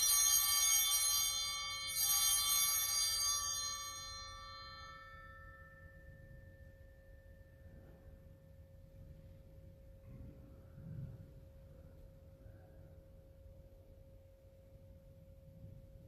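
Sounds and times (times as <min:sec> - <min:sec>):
bells ringing: 0:00.0 - 0:08.3.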